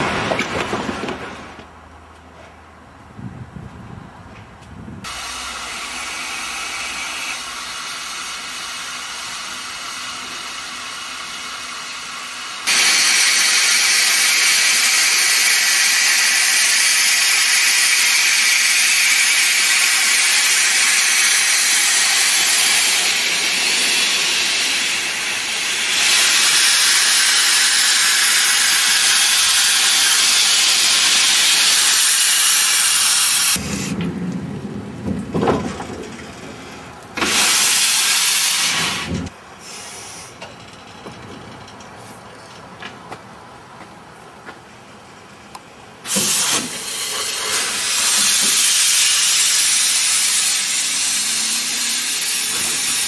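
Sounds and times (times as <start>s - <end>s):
steam locomotive hissing: 5.0s - 34.0s, 37.2s - 40.4s, 46.0s - 53.0s.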